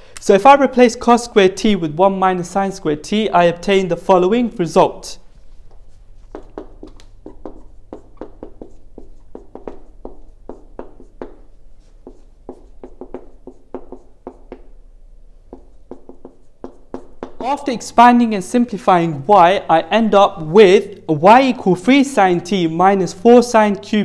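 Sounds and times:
marker writing on whiteboard: 5.2s - 14.8s, 15.4s - 17.9s.

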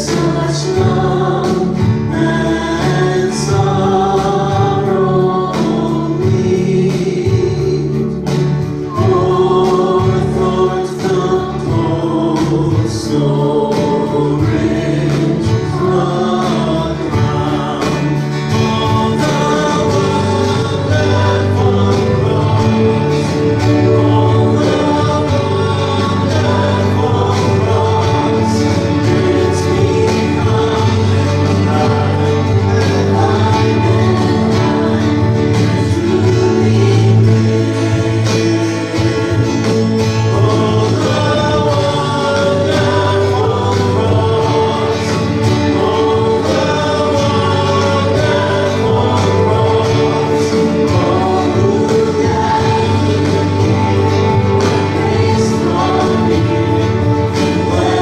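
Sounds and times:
guitars: 0.0s - 58.0s
live band playing: 0.0s - 58.0s
steady bass: 0.0s - 58.0s
voices singing together: 0.0s - 58.0s.

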